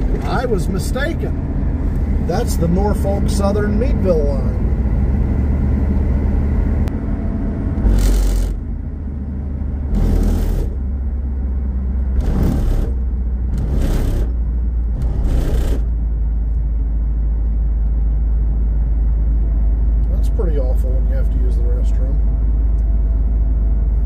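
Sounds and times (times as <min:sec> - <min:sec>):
car road and engine rumble: 0:00.0 - 0:24.0.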